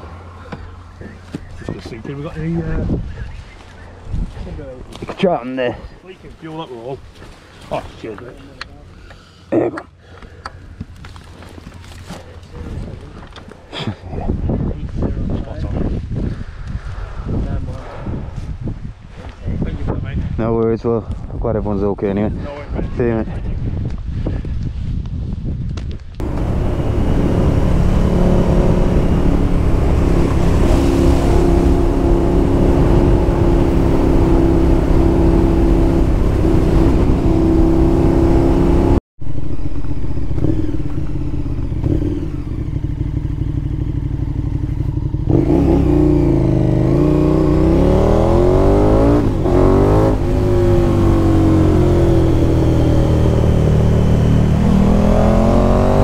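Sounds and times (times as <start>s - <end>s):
motorcycle engine revving: 26.2s - 56.0s.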